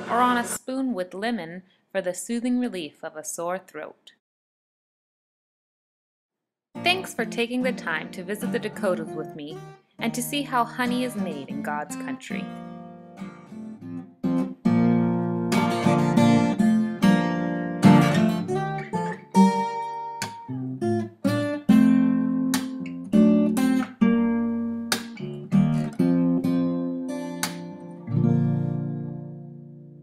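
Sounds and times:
acoustic guitar strumming chords: 0:06.8 - 0:30.0.

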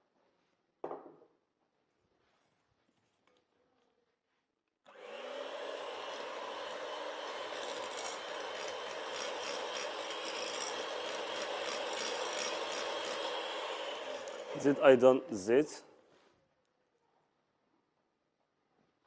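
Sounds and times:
electric hand mixer running: 0:04.9 - 0:15.4.

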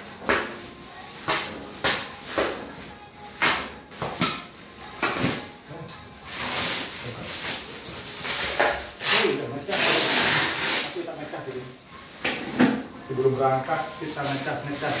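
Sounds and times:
plastic film rustling: 0:06.2 - 0:12.2, 0:13.0 - 0:15.0
plastic film tearing and crinkling: 0:06.3 - 0:11.8, 0:13.2 - 0:15.0.

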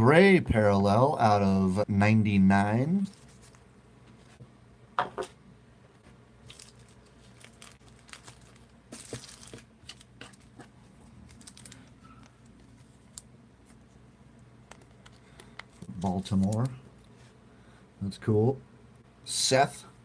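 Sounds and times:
thin plastic crinkling: 0:06.4 - 0:17.2.

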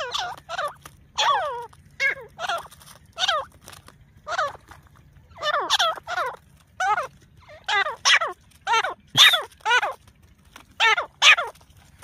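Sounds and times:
francolin calling: 0:00.0 - 0:12.0.

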